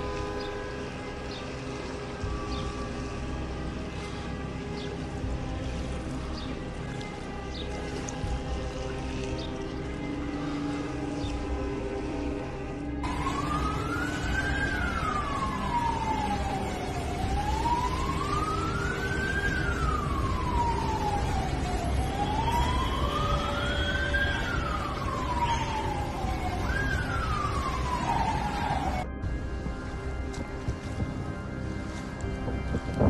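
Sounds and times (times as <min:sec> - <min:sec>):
siren wailing: 0:00.0 - 0:06.8, 0:07.6 - 0:33.0.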